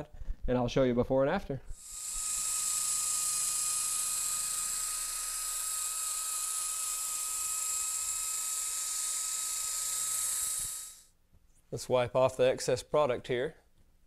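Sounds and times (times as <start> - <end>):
drill motor whine: 1.7 - 11.1
polishing pad hiss: 1.7 - 11.1.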